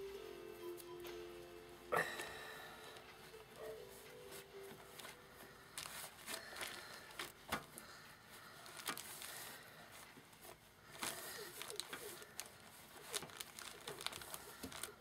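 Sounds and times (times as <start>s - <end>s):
pages rustling: 4.3s - 15.0s.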